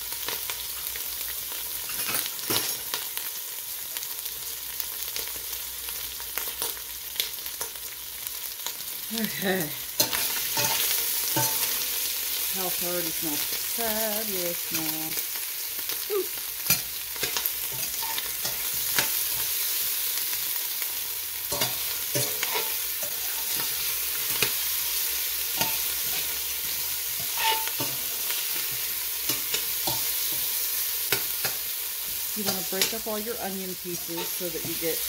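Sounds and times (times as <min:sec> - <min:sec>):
onions sizzling in hot oil: 0:00.0 - 0:35.0
metal spoon scraping a pot: 0:27.1 - 0:30.4.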